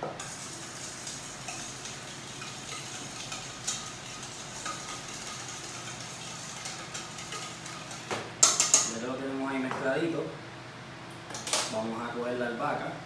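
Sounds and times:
whisk scraping metal bowl: 0.2s - 9.0s
whisk wires clinking on metal: 1.4s - 9.0s.

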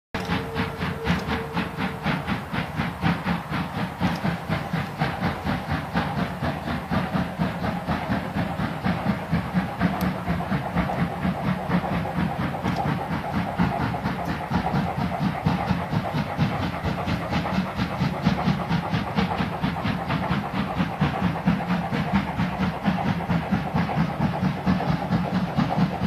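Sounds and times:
steam locomotive chuffing: 0.2s - 26.0s.

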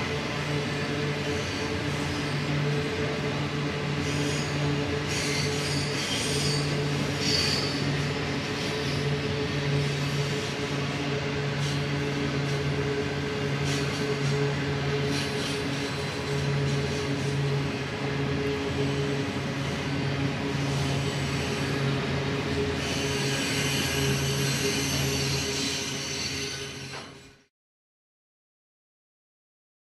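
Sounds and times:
train wagons rolling: 0.0s - 27.4s
wheel squeal: 3.9s - 10.5s, 13.6s - 17.5s, 22.5s - 27.4s.

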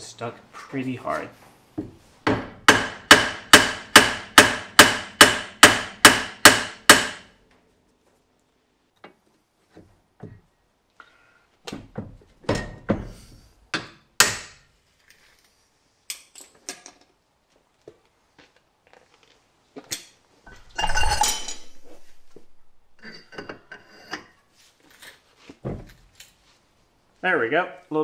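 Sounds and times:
hammer striking metal: 2.2s - 7.3s.

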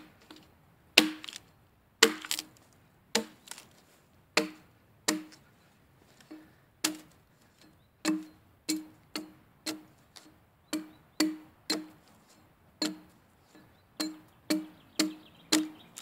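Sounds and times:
axe chopping into log: 1.0s - 1.4s, 2.0s - 2.5s, 3.1s - 3.6s, 4.4s - 5.4s, 6.8s - 7.2s, 14.0s - 16.0s.

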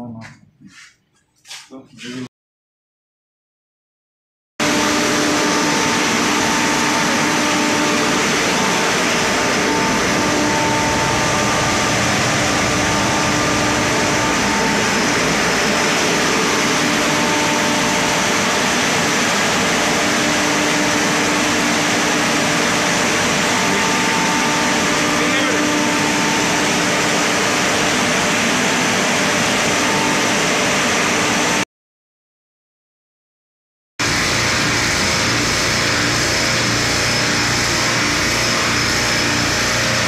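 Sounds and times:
steady hum tones: 4.6s - 30.7s
machinery drone and hiss: 4.6s - 31.6s, 34.0s - 40.0s.

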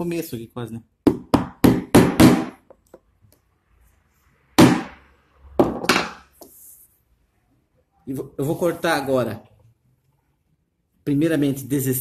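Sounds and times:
hammer driving a nail: 1.1s - 2.6s, 4.6s - 5.0s.

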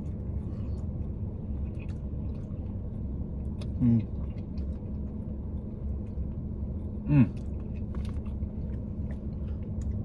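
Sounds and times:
person chewing pizza: 0.0s - 10.0s.

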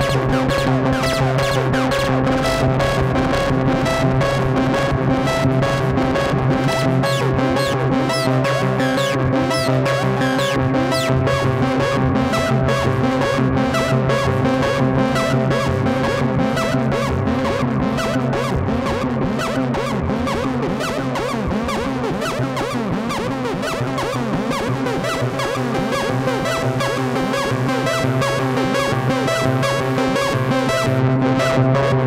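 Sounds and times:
swooping synth chirps: 0.0s - 25.4s
fast ticking pulse: 0.0s - 26.6s
gritty low synth drone: 0.0s - 32.0s
sustained synthesizer tones: 0.0s - 32.0s.

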